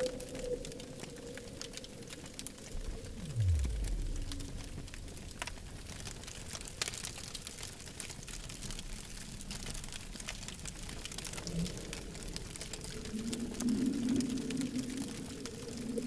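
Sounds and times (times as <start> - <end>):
low hum: 0.0 - 5.6
low rumble: 0.0 - 6.0
campfire crackling: 0.0 - 16.0.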